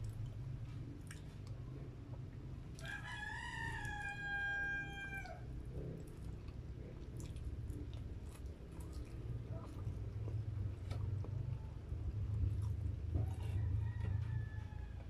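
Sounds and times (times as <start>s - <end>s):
rooster crowing: 2.8s - 5.5s, 13.1s - 15.0s
chewing clicks: 5.8s - 11.8s.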